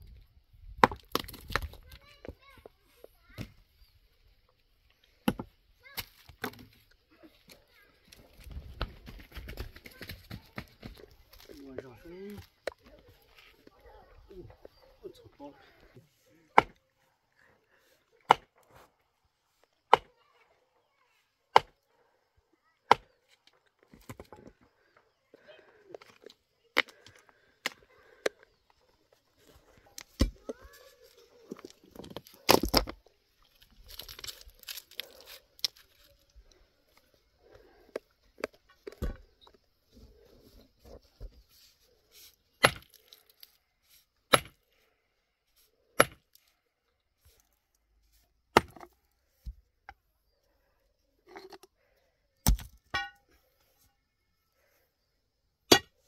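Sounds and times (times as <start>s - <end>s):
hand tools striking rock: 16.5s - 16.8s, 18.3s - 18.5s, 22.9s - 23.2s, 42.6s - 43.1s, 44.3s - 44.6s, 46.0s - 46.4s, 48.6s - 49.0s, 52.4s - 53.3s, 55.7s - 56.0s.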